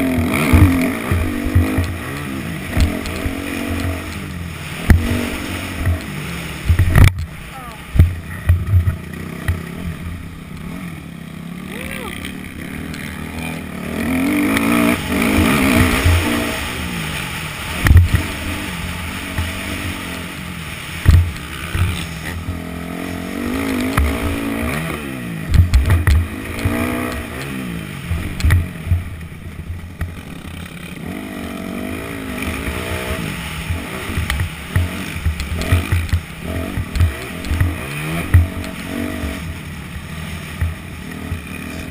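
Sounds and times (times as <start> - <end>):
bike hitting bumps thumps: 0.0 - 9.7, 21.0 - 22.6, 25.5 - 27.6, 33.6 - 39.0
dirt bike engine revving: 0.0 - 41.9.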